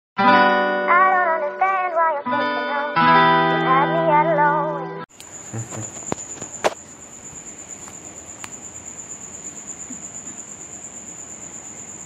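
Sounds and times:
high-pitched insect trill: 5.1s - 12.0s.

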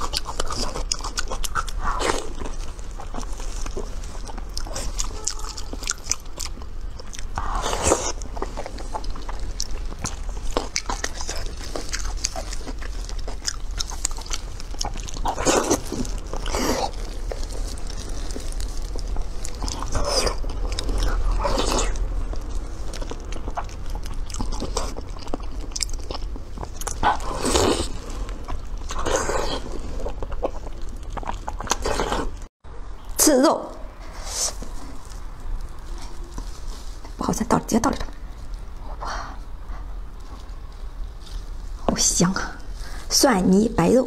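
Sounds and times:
wet chewing with mouth clicks: 0.0s - 32.5s.

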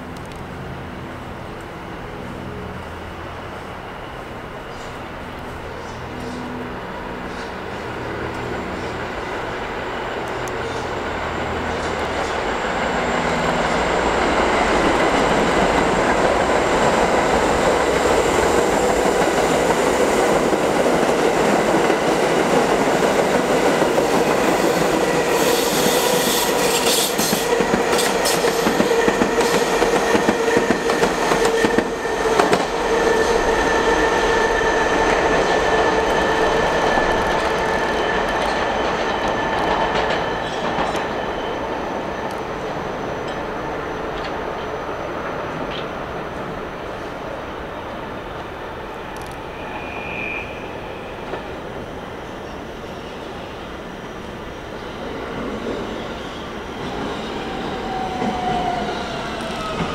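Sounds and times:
subway train rumbling on rails: 0.0s - 59.9s
wheels squealing: 49.4s - 53.2s.

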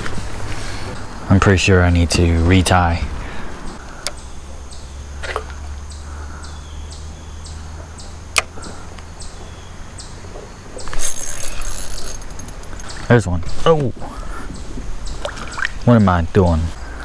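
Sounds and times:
fishing reel cranking whirr: 10.9s - 13.0s.

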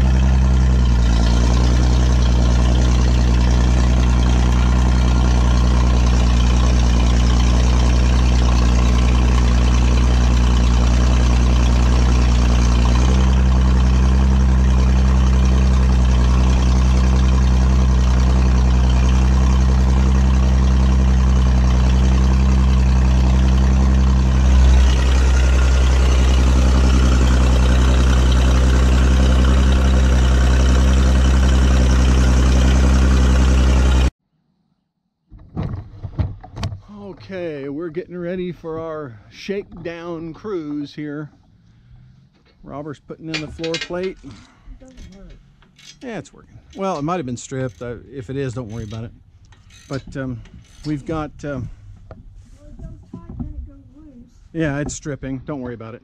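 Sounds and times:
backhoe engine running: 0.0s - 34.1s, 36.8s - 56.0s
low thump: 52.0s - 53.8s.

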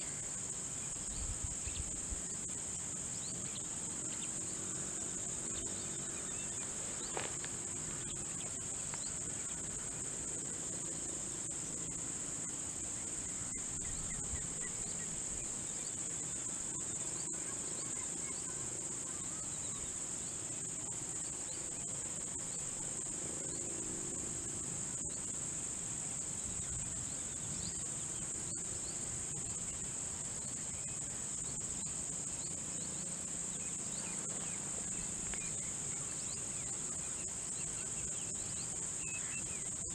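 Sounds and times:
high-pitched insect chorus: 0.0s - 39.9s.

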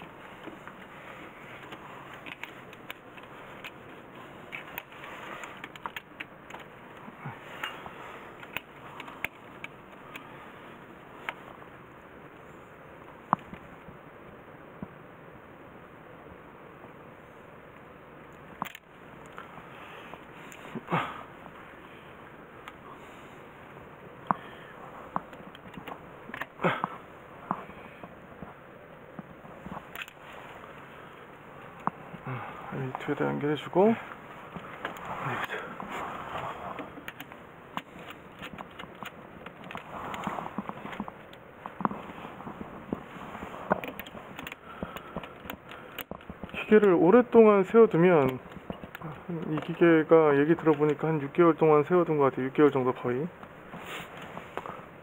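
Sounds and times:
clicks of hand tools and wires: 0.0s - 10.4s, 18.3s - 19.5s, 25.1s - 28.5s, 29.1s - 30.9s, 36.7s - 43.1s, 43.7s - 47.3s, 48.2s - 51.1s
low background hiss: 0.0s - 55.0s.

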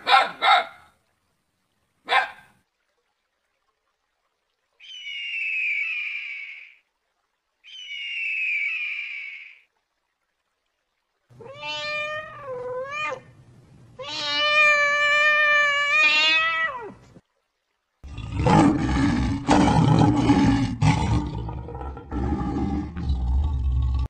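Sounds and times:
cat meowing: 11.4s - 13.2s, 14.0s - 17.0s
lion roaring and growling: 18.0s - 24.0s.

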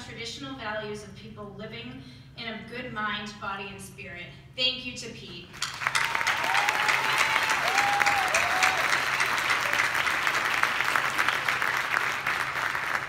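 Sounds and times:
audience applauding: 5.7s - 13.0s
whoops: 5.9s - 10.0s.

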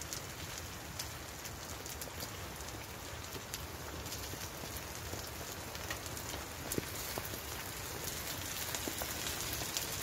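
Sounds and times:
rain pattering on tent fabric: 0.0s - 10.0s.

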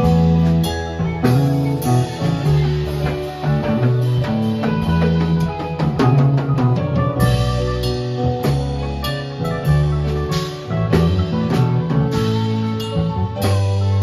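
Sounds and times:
drum and cymbal hits: 0.0s - 14.0s
live band playing: 0.0s - 14.0s
steady bass line: 0.0s - 14.0s.

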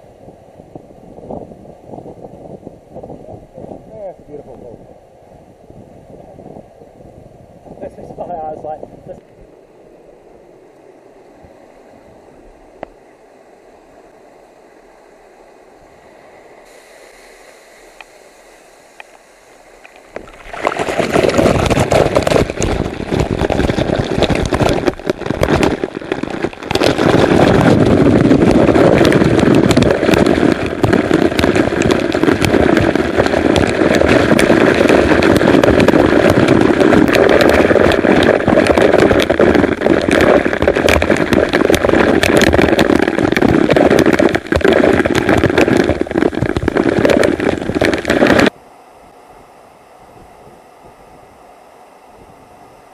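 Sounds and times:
waterfall water hitting camera: 16.7s - 48.5s.

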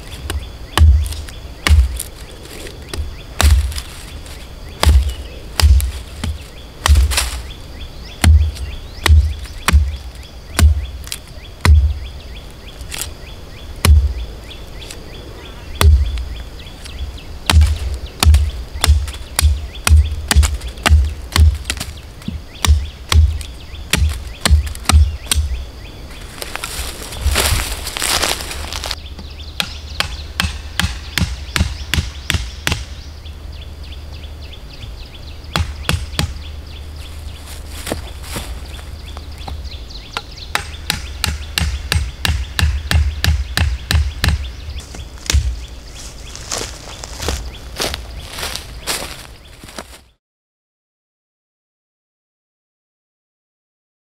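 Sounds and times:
sharp knocks with heavy thuds: 0.2s - 2.1s, 2.9s - 3.9s, 4.8s - 7.4s, 8.2s - 12.0s, 13.8s - 14.2s, 15.8s - 16.2s, 17.5s - 25.6s, 29.2s - 33.0s, 35.5s - 36.4s, 40.2s - 45.7s
chopping blows on wood: 2.9s - 3.8s, 4.8s - 7.4s, 17.5s - 25.5s, 29.6s - 32.9s, 35.6s - 36.4s, 40.5s - 45.6s.

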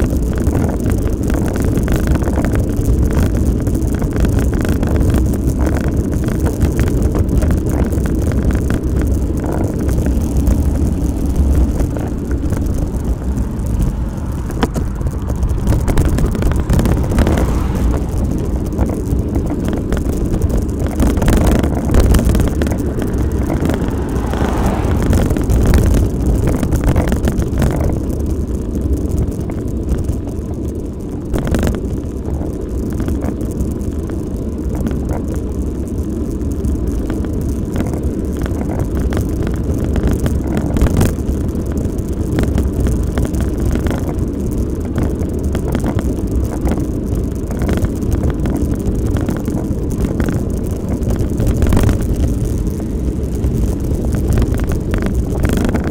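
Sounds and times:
tyres on tarmac: 0.0s - 55.9s
wind rumble on microphone: 0.0s - 55.9s
knocks from road bumps: 7.3s - 28.0s.

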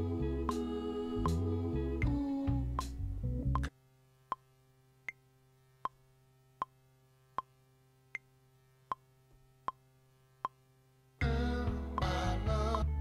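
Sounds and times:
beat music: 0.0s - 3.7s, 11.2s - 13.0s
metronome clicking: 8.9s - 9.8s.

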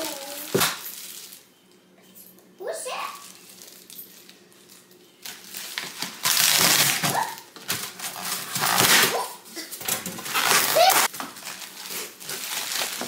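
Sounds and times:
plastic wrapping crinkling: 0.0s - 1.5s, 3.2s - 9.2s, 10.1s - 13.0s.

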